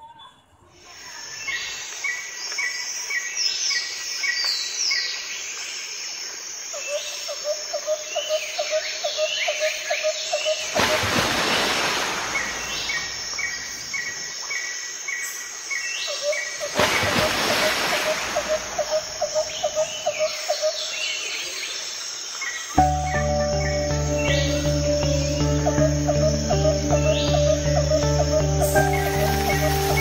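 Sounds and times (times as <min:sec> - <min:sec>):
bird chirping: 0:18.3 - 0:21.3, 0:22.6 - 0:30.0.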